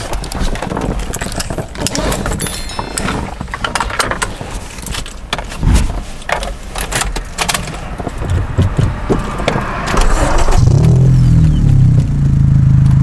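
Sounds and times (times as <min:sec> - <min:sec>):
seatbelt clicks and jangles: 0:00.9 - 0:05.6.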